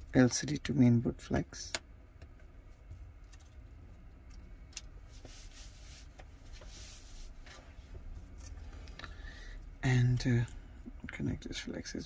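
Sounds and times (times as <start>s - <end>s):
rubbing and scuffing on surface: 5.1s - 8.3s.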